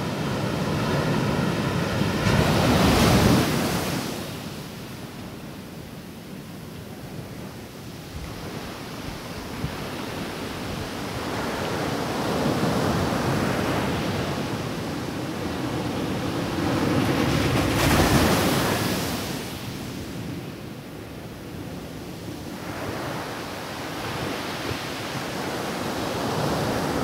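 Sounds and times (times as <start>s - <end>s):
ocean surf breaking: 0.0s - 4.8s, 15.4s - 19.8s.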